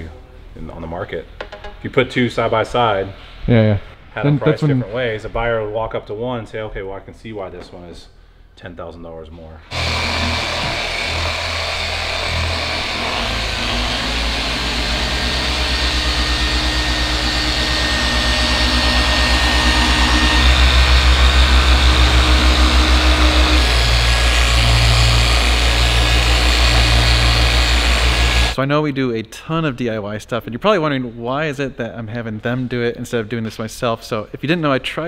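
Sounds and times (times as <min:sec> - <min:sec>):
polisher motor humming: 0:09.7 - 0:28.6.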